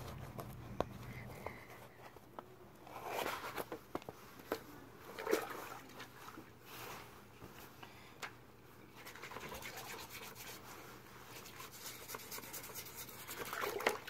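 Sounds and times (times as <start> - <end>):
hands scrubbing inside a bucket: 8.9 - 14.0.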